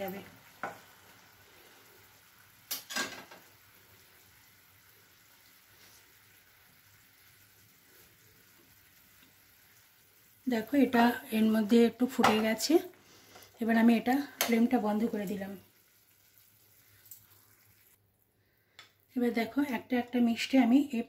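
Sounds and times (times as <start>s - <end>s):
syrup bubbling in frying pan: 0.0s - 11.2s, 14.8s - 18.0s.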